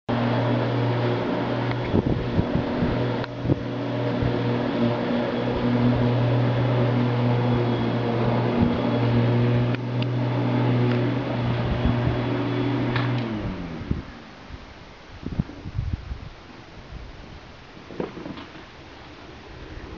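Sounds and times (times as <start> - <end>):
machine motor humming: 0.1 - 14.0.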